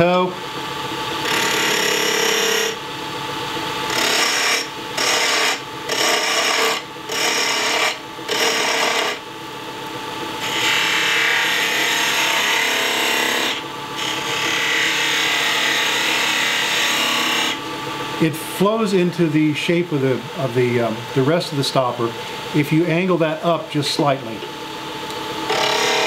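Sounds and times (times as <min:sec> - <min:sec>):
gouge cutting wood on a lathe: 0:01.2 - 0:02.8, 0:03.9 - 0:09.2, 0:10.4 - 0:17.6, 0:25.5 - 0:26.0.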